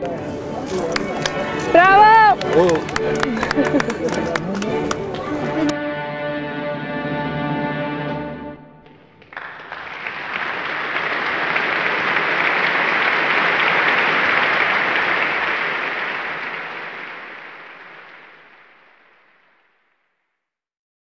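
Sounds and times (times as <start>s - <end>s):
crowd applauding: 0.6s - 5.7s, 8.8s - 19.8s.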